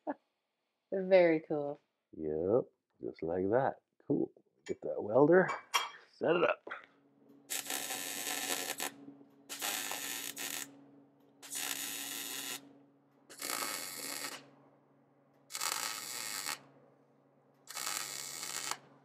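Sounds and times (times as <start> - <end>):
steady low hum: 2.2 - 19.0
crackling welding arc: 7.5 - 12.7, 13.3 - 14.5, 15.4 - 16.7, 17.6 - 18.9.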